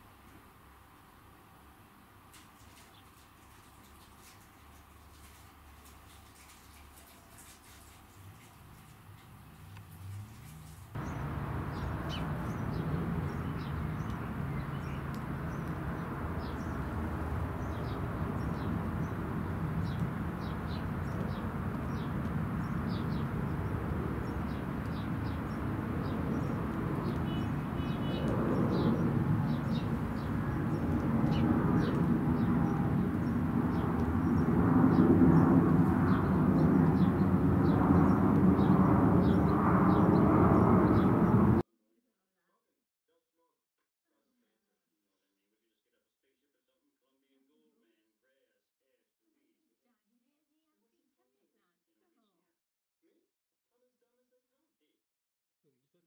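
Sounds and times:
distant engine rumble: 2.4 - 41.6
small birds chirping: 2.4 - 41.6.

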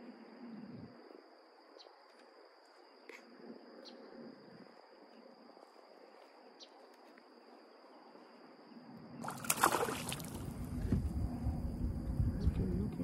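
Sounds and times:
fish splashing: 9.2 - 10.6
water sloshing: 9.2 - 10.8.

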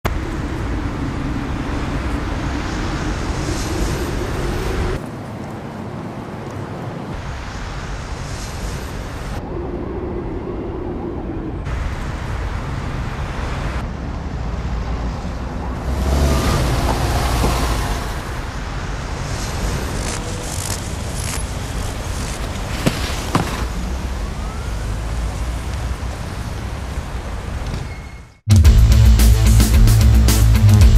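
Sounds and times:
low rumble of traffic: 0.0 - 28.4
vehicle passing: 11.3 - 27.6.

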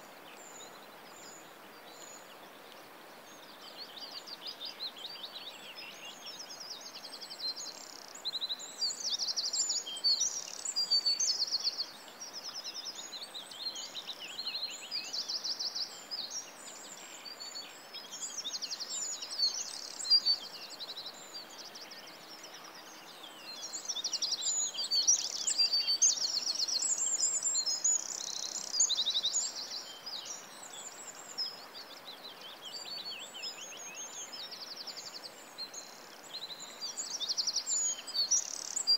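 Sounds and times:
songbirds trilling and chirping: 0.0 - 38.9
steady background hiss: 0.0 - 38.9.

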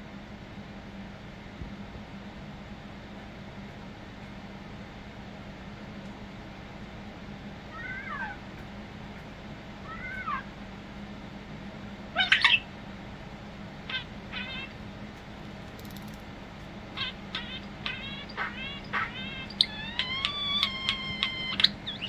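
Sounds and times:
starling singing: 12.2 - 12.8, 13.8 - 14.8, 16.8 - 22.0.

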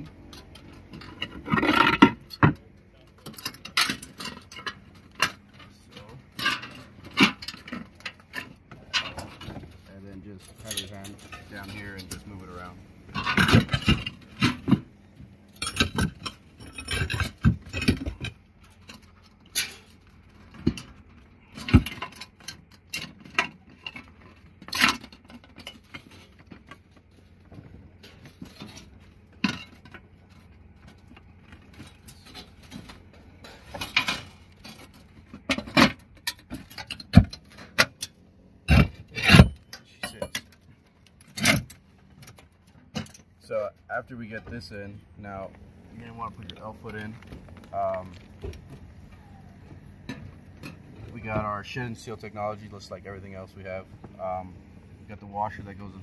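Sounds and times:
metal flashing scraping on roof tiles: 3.2 - 27.4.

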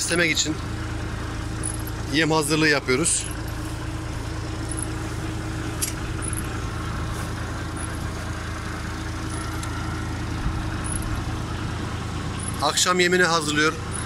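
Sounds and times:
feed-chopping machine humming: 0.0 - 14.0.

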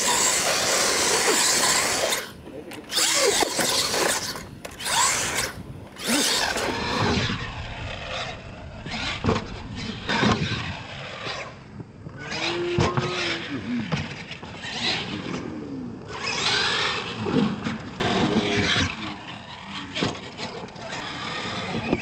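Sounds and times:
toy truck motor whining: 0.0 - 7.5, 16.1 - 17.1
tyres spinning on dirt: 0.0 - 8.3.

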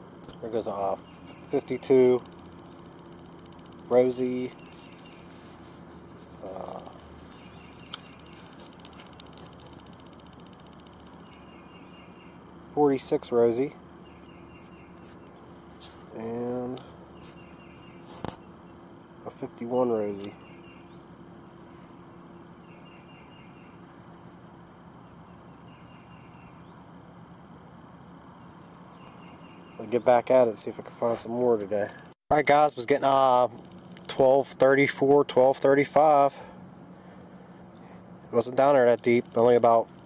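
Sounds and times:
high insect hum: 0.0 - 40.0
fast pulsing trill: 0.8 - 21.2.

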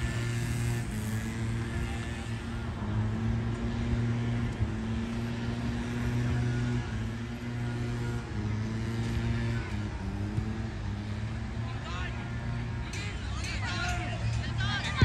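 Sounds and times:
low engine hum: 0.0 - 15.0
outdoor background noise: 0.0 - 15.0.

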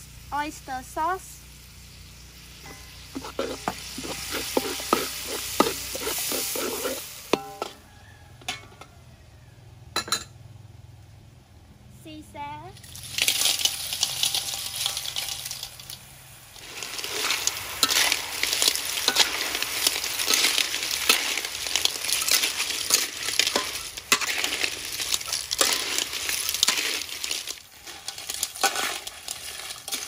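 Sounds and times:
clams sizzling in wok: 0.0 - 9.1, 12.8 - 30.0
shells clattering in wok: 12.8 - 30.0.

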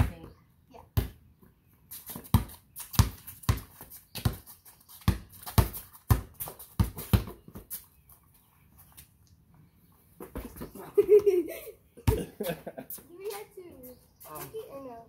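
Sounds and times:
basketball bouncing on concrete: 0.0 - 1.3, 2.0 - 7.8, 12.0 - 12.3.

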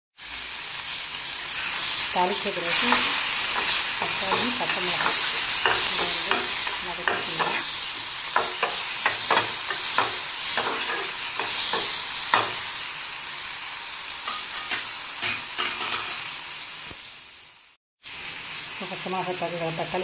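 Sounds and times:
vegetables sizzling in hot oil: 0.2 - 20.0
metal spatula scraping a pan: 2.5 - 12.8, 14.3 - 16.3.

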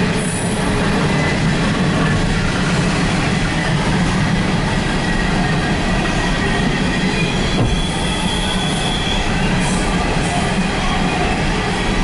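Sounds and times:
train wheels rumbling on rails: 0.0 - 12.0
high wheel squeal: 6.1 - 11.4.

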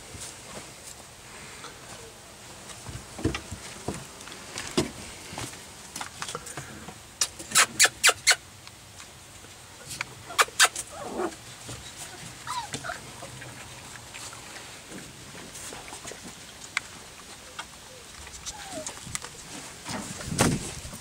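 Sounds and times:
puppies yapping sharply: 7.2 - 8.4, 10.2 - 11.3, 11.9 - 13.5
puppy whimper: 12.4 - 13.4, 18.4 - 19.0.

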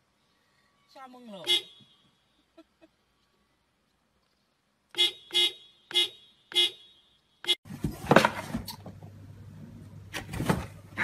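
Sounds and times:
car horn toots: 5.0 - 7.6
knocks and rustles: 7.7 - 9.2, 10.1 - 10.9
low steady hum: 7.7 - 11.0.

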